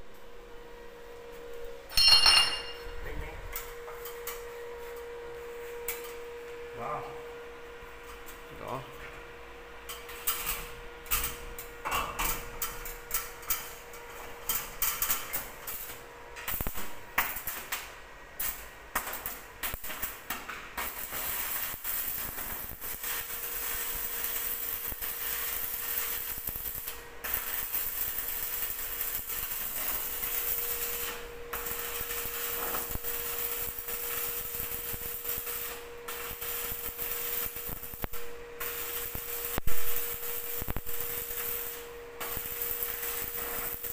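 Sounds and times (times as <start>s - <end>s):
welding arc crackling: 9.9s - 43.9s.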